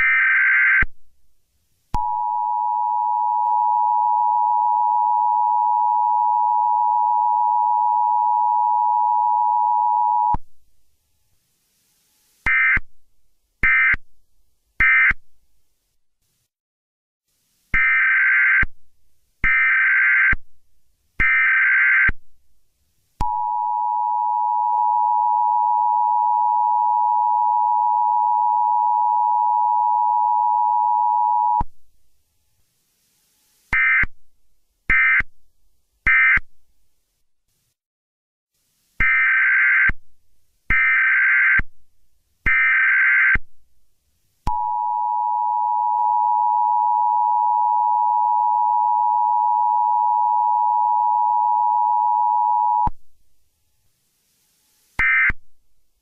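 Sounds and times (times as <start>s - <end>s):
longer higher beeps: 2.0s - 10.4s, 23.2s - 31.6s, 44.5s - 52.9s.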